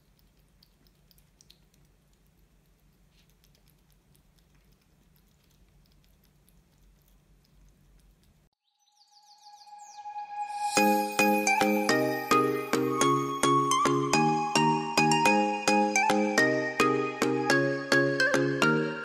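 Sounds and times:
chiming bell-like tune: 10.0s - 18.2s.

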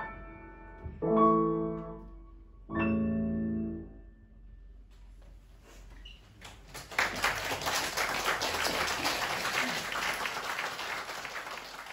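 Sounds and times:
audience applause: 6.4s - 11.9s.

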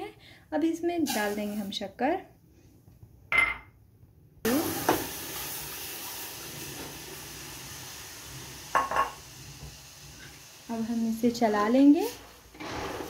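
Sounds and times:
milk hissing in hot fat: 4.5s - 13.0s.

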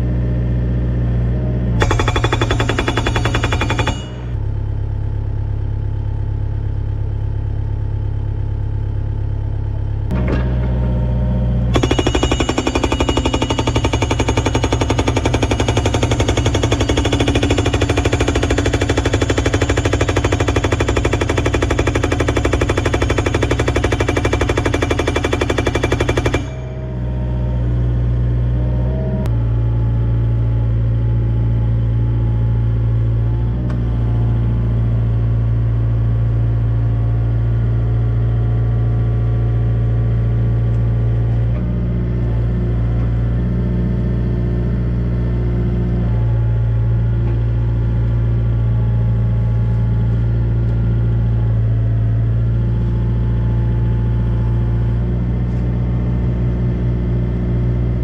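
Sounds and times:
diesel engine running: 0.0s - 58.0s
hydraulic rock breaker hammering: 1.8s - 4.4s, 11.7s - 27.0s.

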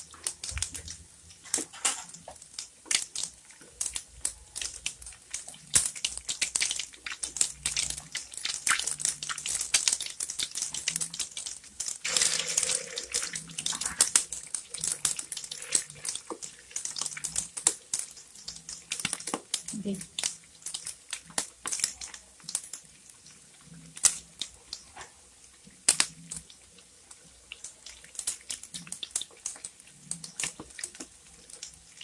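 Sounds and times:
oil sizzling and popping: 0.0s - 32.0s.

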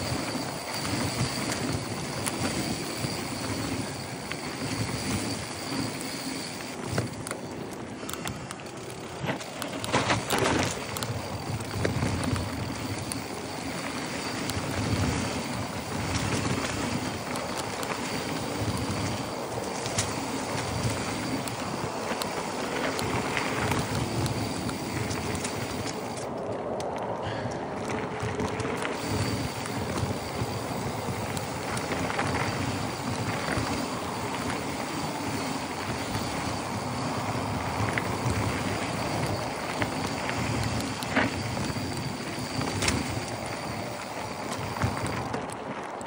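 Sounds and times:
wind on microphone: 0.0s - 6.1s
bike tyres on dirt and leaves: 0.0s - 46.0s.

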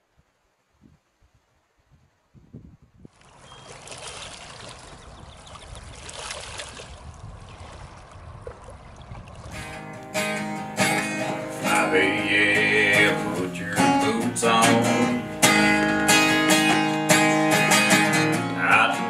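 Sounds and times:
water lapping on rocks: 3.1s - 11.9s
acoustic guitar music: 9.5s - 19.0s.

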